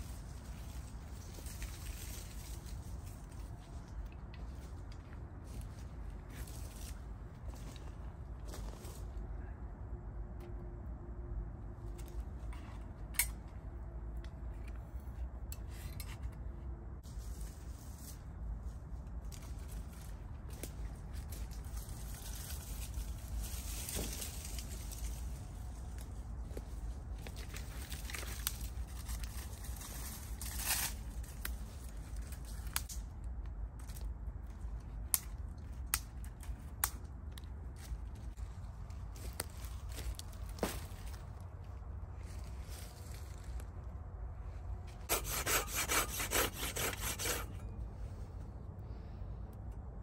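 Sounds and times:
steady low rumble: 0.0s - 45.2s
dry twigs snapping: 27.2s - 38.3s, 39.2s - 41.3s.

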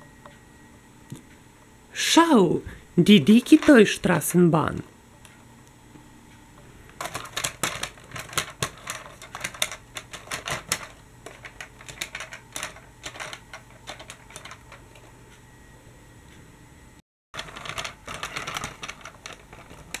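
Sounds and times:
plastic toy tram clicking: 7.0s - 14.7s, 17.4s - 20.0s.

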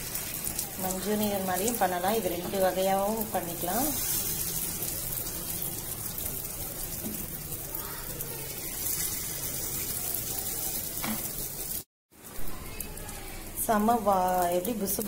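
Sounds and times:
batter sizzling in hot oil: 0.0s - 15.0s.

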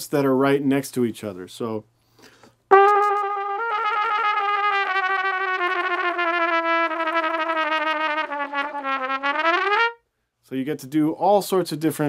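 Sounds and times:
trumpet trills: 2.7s - 10.0s.

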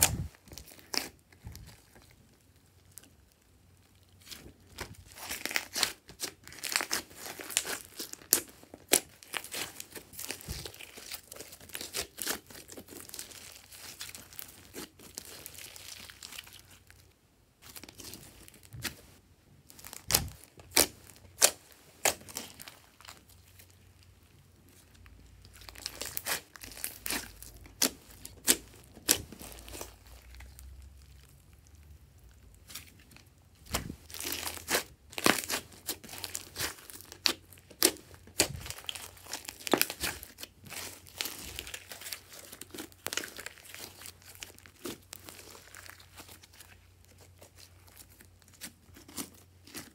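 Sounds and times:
slime squelching and crackling: 0.0s - 49.9s
slime air pockets popping: 20.0s - 22.3s.

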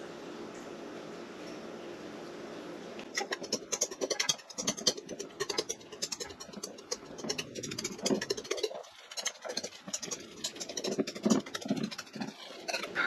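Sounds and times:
fork mashing in metal bowl: 3.2s - 13.0s.

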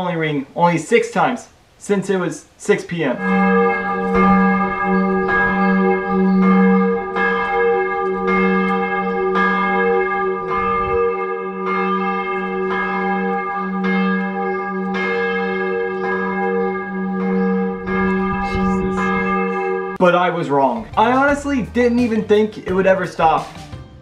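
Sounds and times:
church bell ringing: 3.1s - 20.0s.

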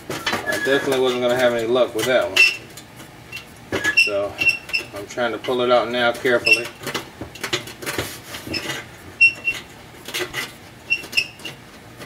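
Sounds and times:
metal scraping and rubbing: 0.0s - 12.0s
short high squeaks: 0.2s - 1.0s, 3.3s - 5.0s, 6.3s - 6.8s, 8.5s - 11.6s.

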